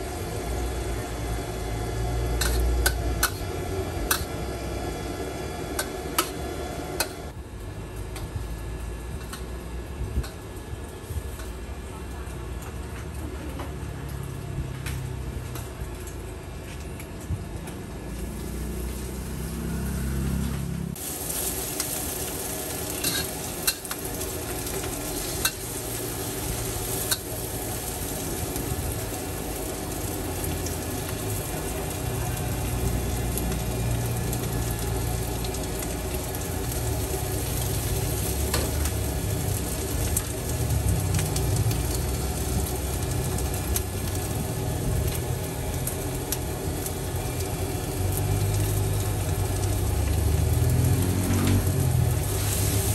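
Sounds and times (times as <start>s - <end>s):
noodles sizzling in wok: 0.0s - 7.4s, 18.1s - 52.9s.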